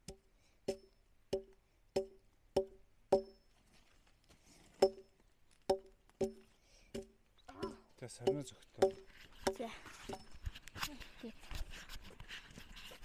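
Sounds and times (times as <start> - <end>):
tool striking wood: 0.0 - 3.4, 4.8 - 5.1, 5.7 - 10.3.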